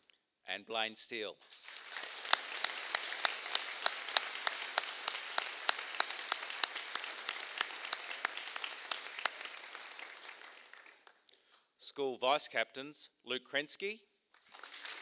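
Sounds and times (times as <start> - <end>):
audience applauding: 1.4 - 11.2, 14.4 - 15.0.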